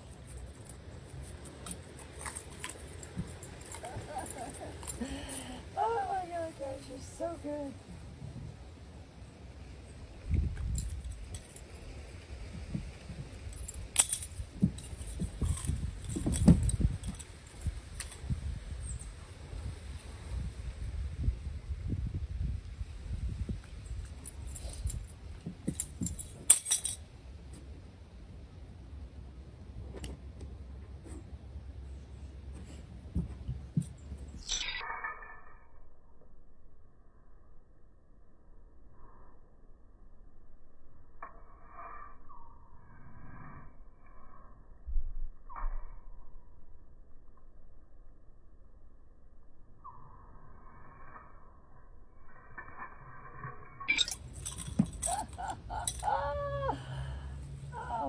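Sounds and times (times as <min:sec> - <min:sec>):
dog collar jingling: 0:00.0 - 0:07.6, 0:13.4 - 0:18.2, 0:24.0 - 0:27.0, 0:33.2 - 0:35.6, 0:53.8 - 0:56.1
thumps and rustling of handling: 0:32.5 - 0:34.4.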